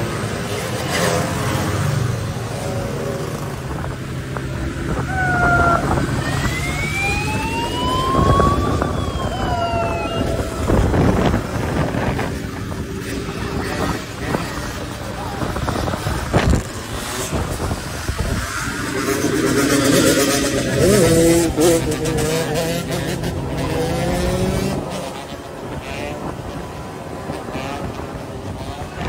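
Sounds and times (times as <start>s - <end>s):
motorcycle engines running: 0.0s - 29.0s
police siren wailing: 4.9s - 12.4s.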